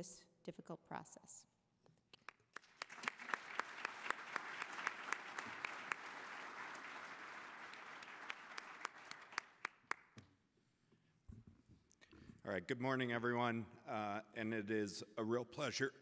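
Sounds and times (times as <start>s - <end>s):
audience applauding: 2.5s - 10.2s.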